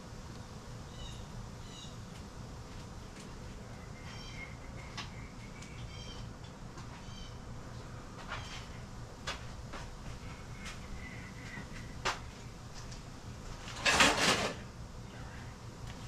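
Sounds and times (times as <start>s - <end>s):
clattering scrape: 13.7s - 14.6s.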